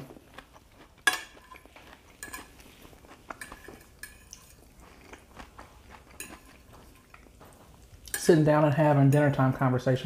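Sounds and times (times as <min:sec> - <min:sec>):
faint chewing: 0:00.0 - 0:08.2
fork clinking against plate: 0:01.0 - 0:05.3, 0:06.0 - 0:08.4.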